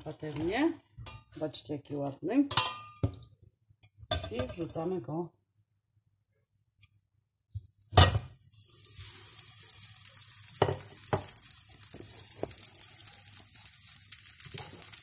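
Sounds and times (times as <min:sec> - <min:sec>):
oil sizzling: 0:07.6 - 0:15.0
sharp crackles: 0:08.6 - 0:15.0.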